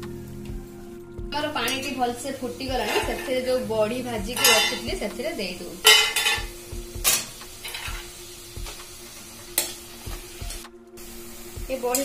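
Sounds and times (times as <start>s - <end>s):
steady sizzle: 0.0s - 12.0s
spatula scraping metal pan: 2.7s - 3.6s, 4.4s - 4.9s.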